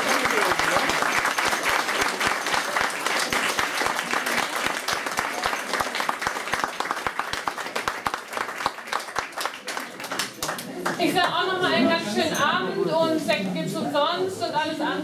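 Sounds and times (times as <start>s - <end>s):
audience applauding: 0.0s - 11.0s.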